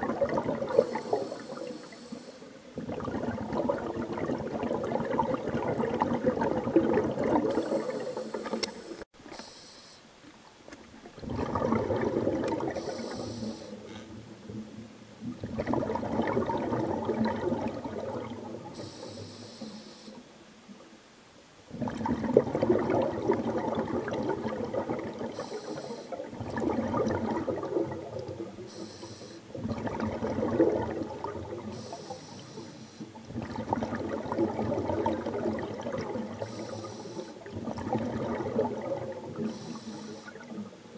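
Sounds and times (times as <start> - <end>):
exhaled bubbles gurgling underwater: 0.0 - 9.0, 10.4 - 20.9, 21.7 - 40.9
regulator inhale hiss: 0.7 - 2.6, 7.5 - 10.1, 12.8 - 14.0, 18.8 - 20.2, 25.4 - 26.2, 28.7 - 29.6, 31.7 - 33.2, 36.4 - 37.5, 39.4 - 40.5.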